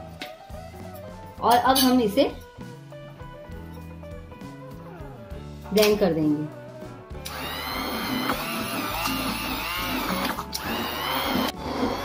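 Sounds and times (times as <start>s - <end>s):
stick blender motor whine: 7.2s - 12.0s.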